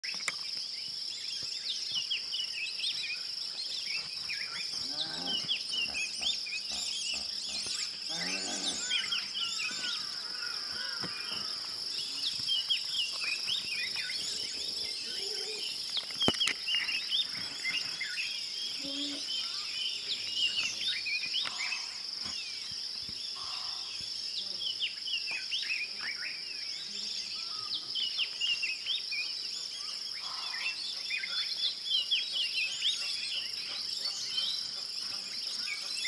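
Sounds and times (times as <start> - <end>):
birds chirping and whistling: 0.0 - 23.8
high insect drone: 0.1 - 36.0
deep drawn-out animal calls: 4.8 - 11.7.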